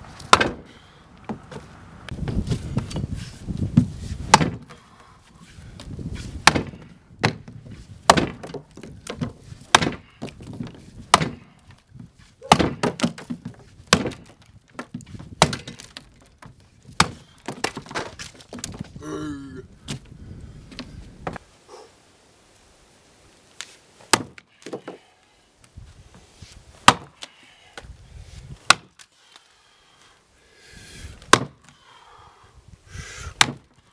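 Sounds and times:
axe chopping log: 0.1s - 1.6s, 3.7s - 4.8s, 5.8s - 18.8s, 24.0s - 25.1s, 26.8s - 27.3s, 28.6s - 29.0s, 31.2s - 31.7s, 33.4s - 33.8s.

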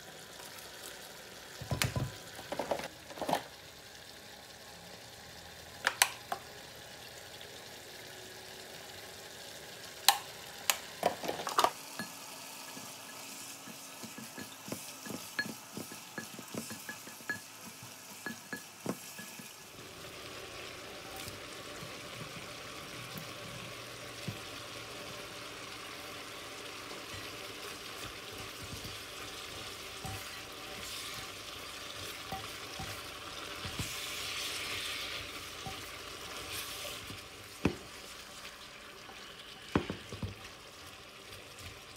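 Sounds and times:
food frying in a pan: 0.0s - 41.9s
spatula scraping a pan: 27.1s - 37.2s.

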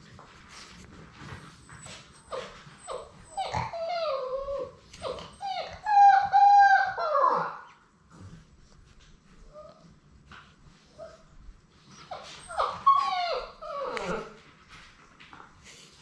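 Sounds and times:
puppy whining: 1.1s - 8.4s, 9.4s - 10.0s, 10.8s - 14.5s.

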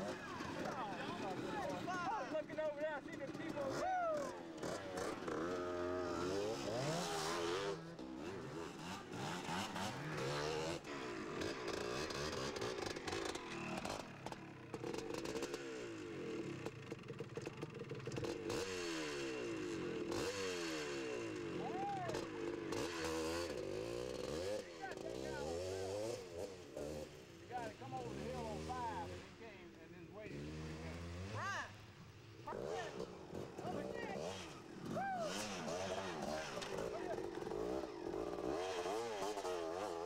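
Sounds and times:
motorcycles revving past: 0.0s - 40.0s.

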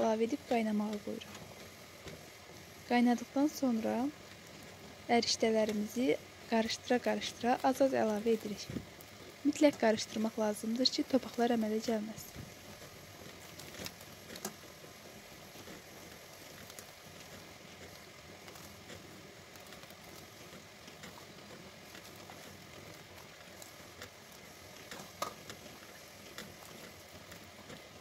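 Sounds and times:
boiling water bubbling: 0.0s - 28.0s.

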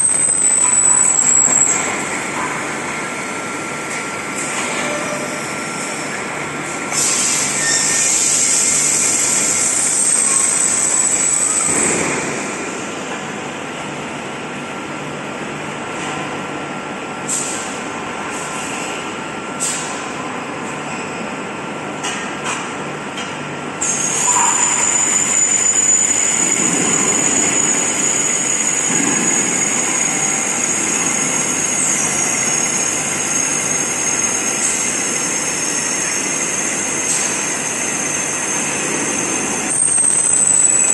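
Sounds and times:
compressed air hiss and whistle: 6.9s - 12.3s, 23.8s - 33.1s.

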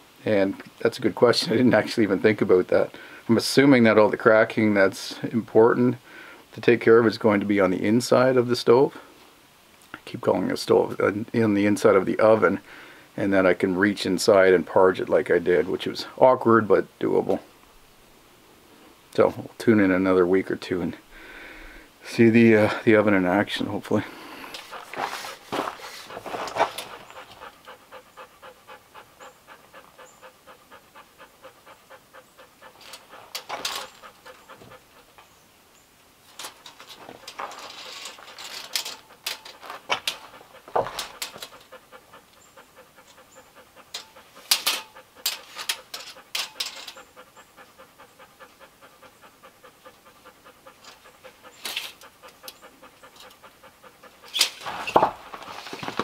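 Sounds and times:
dog panting: 22.0s - 35.3s, 36.2s - 56.0s
sharp clicks and knocks: 36.3s - 41.7s.

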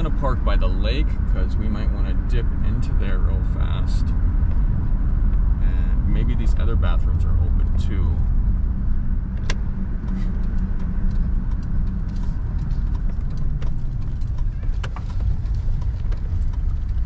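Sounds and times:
van engine and road rumble: 0.0s - 17.0s
clicks and ticks: 9.4s - 17.0s.

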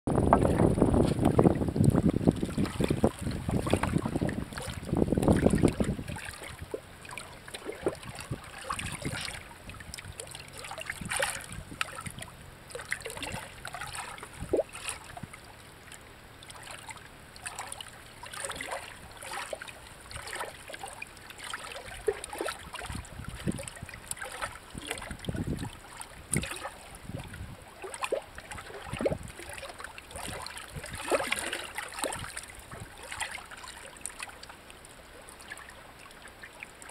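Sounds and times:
wind buffeting microphone: 0.1s - 10.2s, 10.8s - 12.3s, 22.6s - 27.7s, 28.6s - 29.5s, 30.1s - 31.4s, 32.1s - 33.0s
water lapping among rocks: 0.1s - 36.9s
small ticks and splashes: 0.3s - 36.9s.

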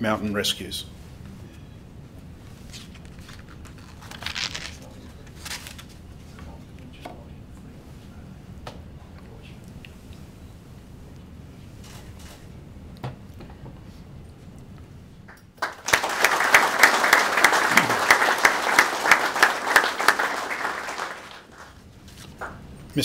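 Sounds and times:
audience applauding: 15.6s - 21.8s.

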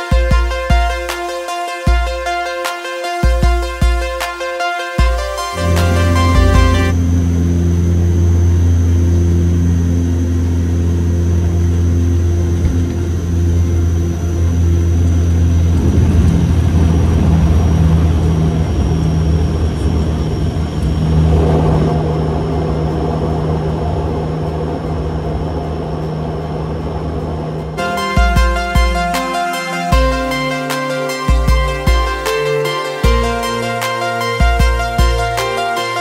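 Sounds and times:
turboprop engines droning: 0.0s - 36.0s
rough rushing noise: 15.1s - 36.0s.

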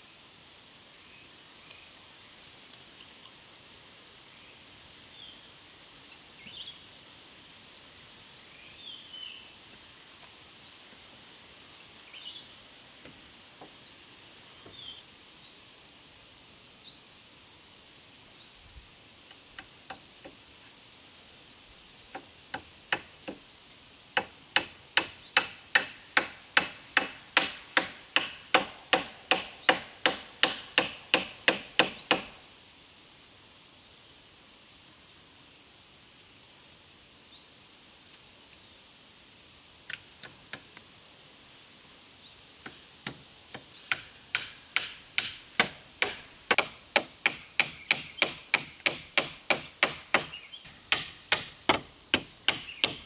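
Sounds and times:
insects buzzing: 0.0s - 53.0s
hammer striking wood: 24.2s - 32.3s, 42.6s - 53.0s.

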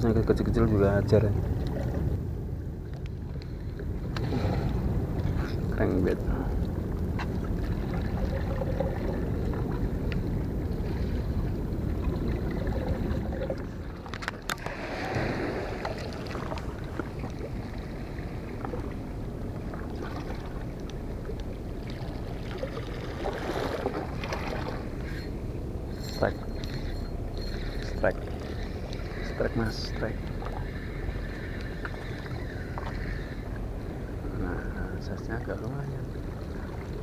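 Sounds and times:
water washing against seawall: 7.6s - 21.2s.

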